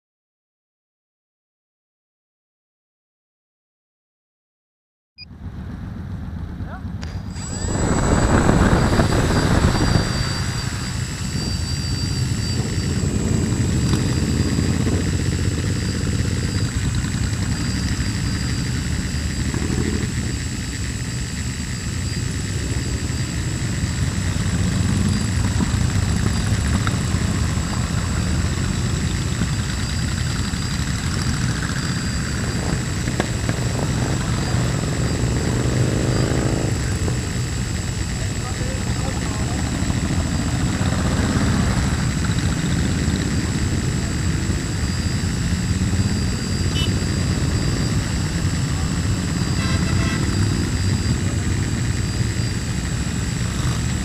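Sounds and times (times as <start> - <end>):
motorcycles rumbling: 5.3 - 54.0
drone rotors whining: 5.5 - 54.0.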